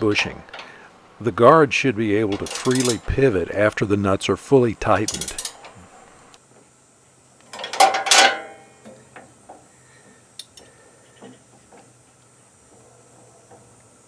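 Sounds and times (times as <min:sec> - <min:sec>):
steel wrenches clanking: 0:00.1 - 0:00.8, 0:02.2 - 0:06.3, 0:07.5 - 0:09.0.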